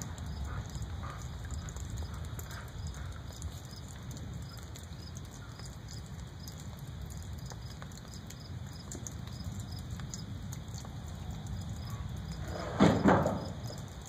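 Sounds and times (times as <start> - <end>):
thunder rumble: 11.0 - 14.0.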